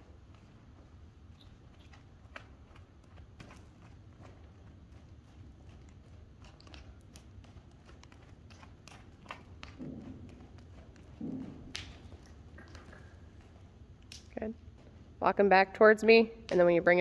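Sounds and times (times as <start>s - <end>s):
horse hooves on dirt: 0.0s - 17.0s
dull thuds: 9.8s - 12.0s.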